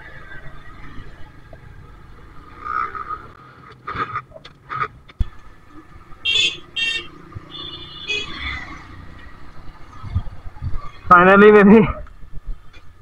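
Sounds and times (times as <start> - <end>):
vehicle horn honking: 6.2 - 8.4.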